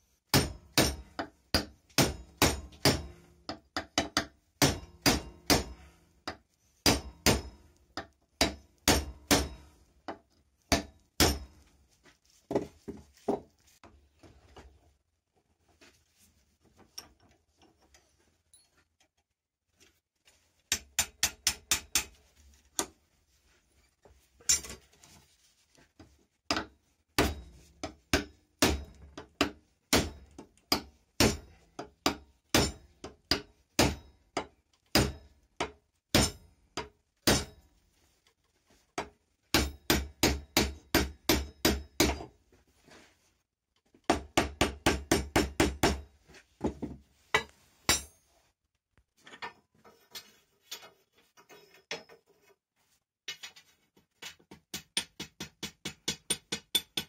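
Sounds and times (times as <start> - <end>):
hammer striking hot steel: 0.3 - 3.2, 4.6 - 5.8, 6.8 - 7.7, 8.4 - 9.7, 10.7 - 11.6, 27.2 - 27.6, 28.2 - 29.0, 32.1 - 34.1, 36.1 - 36.4.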